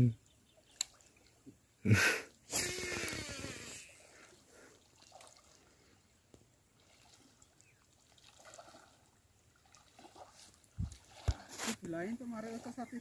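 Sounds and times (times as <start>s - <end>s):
water sloshing around wading legs: 4.2s - 13.0s.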